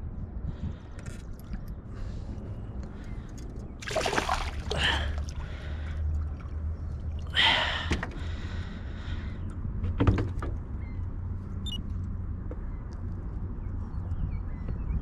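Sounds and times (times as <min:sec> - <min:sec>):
fish splashing at surface: 0:03.8 - 0:05.2.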